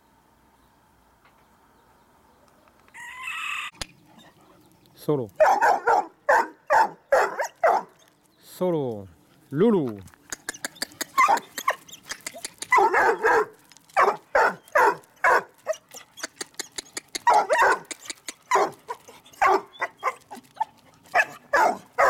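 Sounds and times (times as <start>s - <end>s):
puppies barking and yipping: 5.4s - 8.3s, 10.1s - 22.0s
sharp clicks: 10.1s - 12.8s, 16.2s - 18.6s.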